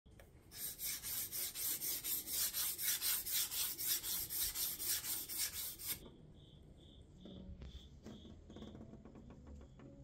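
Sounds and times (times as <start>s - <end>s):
pencil scribbling on wood: 0.5s - 6.0s.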